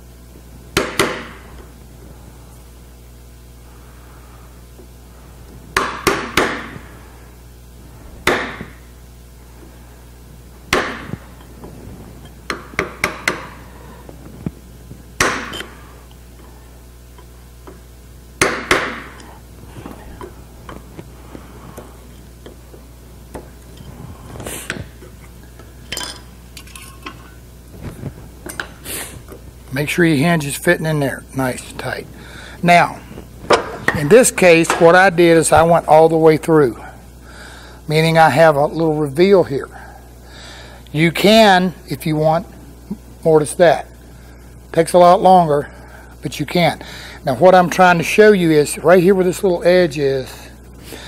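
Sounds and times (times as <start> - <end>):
mallet striking chisel: 15.2 - 15.7, 18.4 - 19.3
tools knocking and clinking: 25.6 - 27.3.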